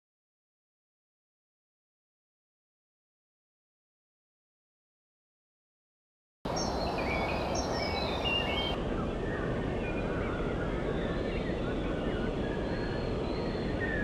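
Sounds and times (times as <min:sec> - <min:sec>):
birds chirping and twittering: 0:06.5 - 0:14.0
outdoor background noise: 0:06.5 - 0:14.0.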